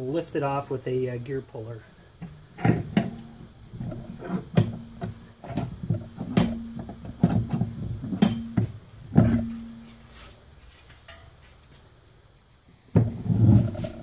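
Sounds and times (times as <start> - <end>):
knocks and clunks of bike wheel: 2.2 - 9.9, 12.9 - 13.3.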